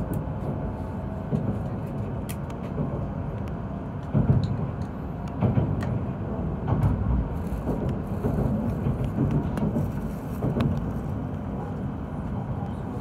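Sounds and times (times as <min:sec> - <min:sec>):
train running low rumble: 0:00.0 - 0:13.0
wheels knocking on track: 0:04.0 - 0:11.3.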